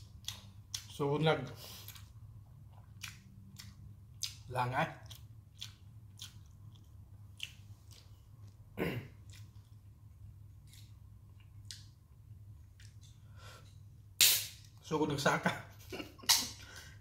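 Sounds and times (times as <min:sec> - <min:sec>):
person chewing noodles: 0:00.0 - 0:13.9
wet mouth clicks and smacks: 0:02.8 - 0:08.2, 0:14.2 - 0:14.5, 0:16.2 - 0:16.6.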